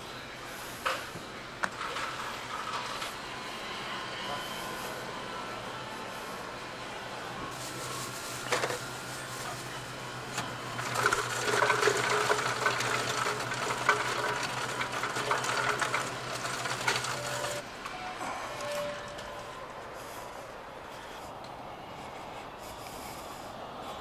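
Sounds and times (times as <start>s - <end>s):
soda fountain humming: 1.3s - 17.6s
plastic bag rustling and clattering: 10.8s - 17.6s.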